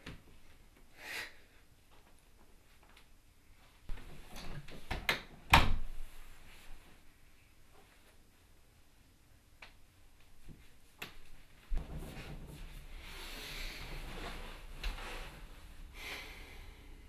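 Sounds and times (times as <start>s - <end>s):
rustling and scraping: 10.4s - 15.9s.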